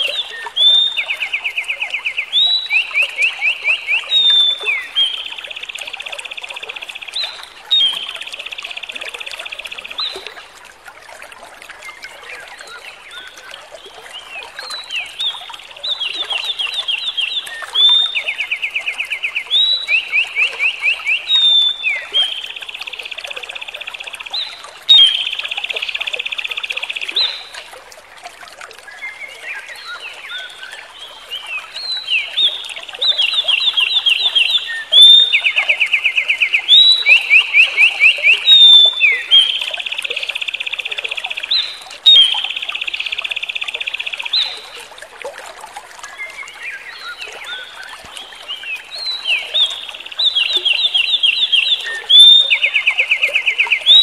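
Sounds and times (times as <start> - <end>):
songbird singing trills: 0.0 - 10.4, 12.0 - 27.6, 28.9 - 44.8, 46.2 - 54.0.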